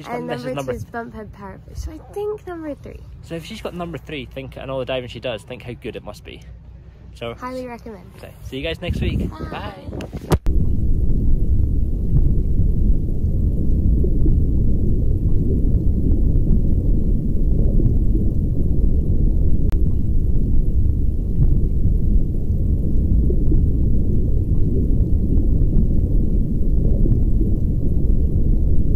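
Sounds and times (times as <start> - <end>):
underwater rumble of moving water: 0.0 - 28.9.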